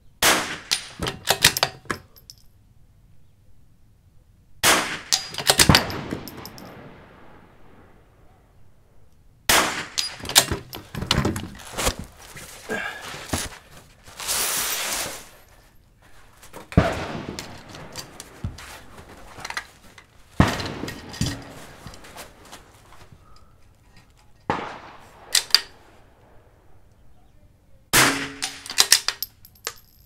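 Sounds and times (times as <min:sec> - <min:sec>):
rifle shots with echo: 0:00.2 - 0:01.0, 0:04.6 - 0:08.1, 0:09.5 - 0:10.7, 0:16.8 - 0:18.4, 0:24.5 - 0:26.1, 0:27.9 - 0:29.1
clicks and handling noise: 0:00.7 - 0:02.5, 0:05.1 - 0:06.7, 0:09.9 - 0:26.3, 0:28.4 - 0:30.0
rustling: 0:10.1 - 0:26.1.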